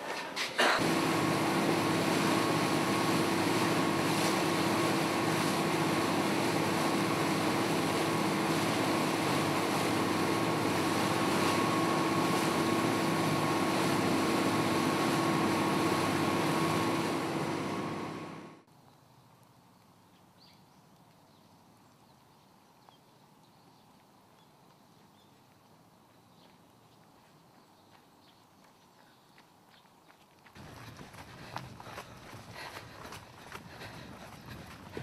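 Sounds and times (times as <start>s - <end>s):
water rushing from wake: 0.7s - 18.4s
boat engine droning: 0.7s - 18.6s.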